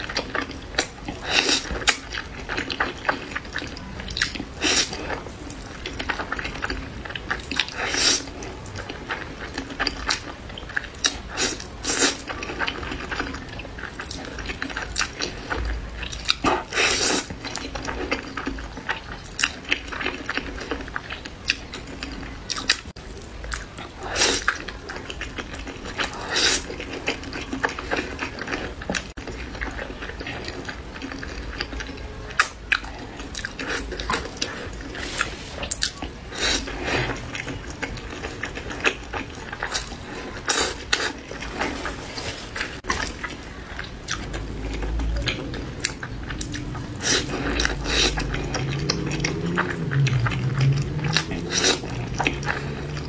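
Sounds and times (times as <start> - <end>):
slurping noodles: 7.6 - 8.5, 11.1 - 13.4, 16.2 - 18.3, 26.0 - 27.1, 32.9 - 43.5, 44.1 - 53.0
chewing and lip smacks: 42.8 - 53.0.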